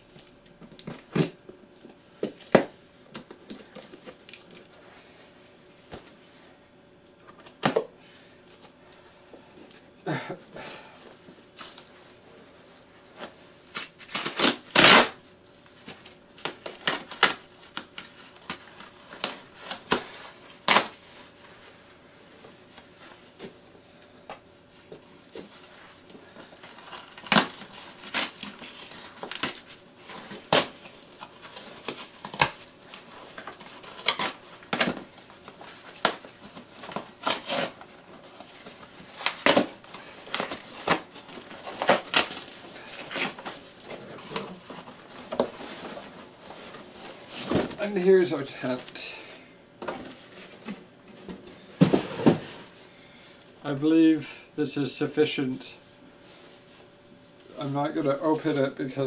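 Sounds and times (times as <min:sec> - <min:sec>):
cardboard rustling and scraping: 0:24.4 - 0:48.1, 0:49.8 - 0:52.8.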